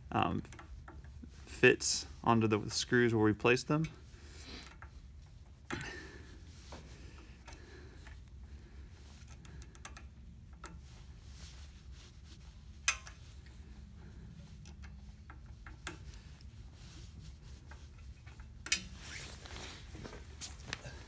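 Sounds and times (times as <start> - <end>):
low steady hum: 0.0 - 21.0
faint metal rubbing: 6.3 - 20.4.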